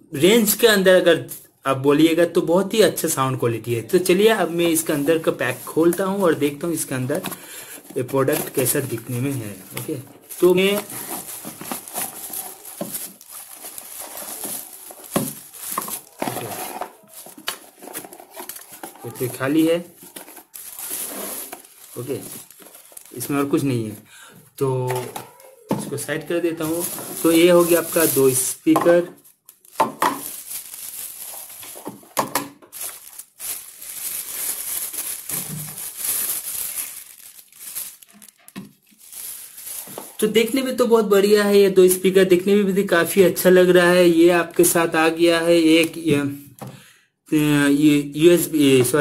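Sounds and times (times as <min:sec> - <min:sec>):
plastic bags crinkling: 0:03.0 - 0:41.2.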